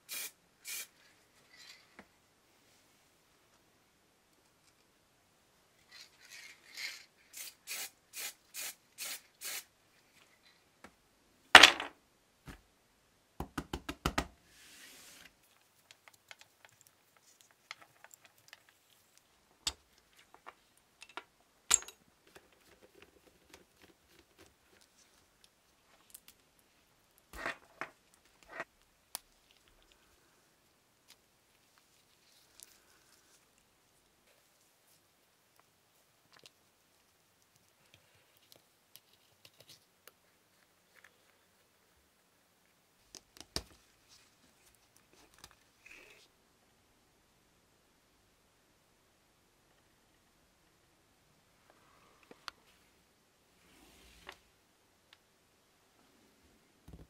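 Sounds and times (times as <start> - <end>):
spray can rattle: 0.1 - 0.9, 6.8 - 9.6
spray paint hissing: 0.1 - 0.9, 7.3 - 9.7.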